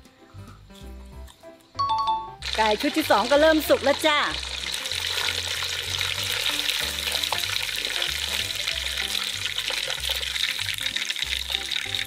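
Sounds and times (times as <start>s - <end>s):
background music with bass line: 0.0s - 12.0s
hot oil sizzling and crackling: 2.4s - 12.0s.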